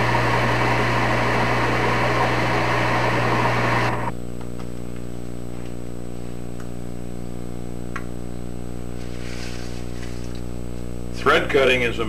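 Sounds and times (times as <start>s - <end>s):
lathe cutting threads: 0.0s - 4.1s
steady machine hum: 0.0s - 4.4s.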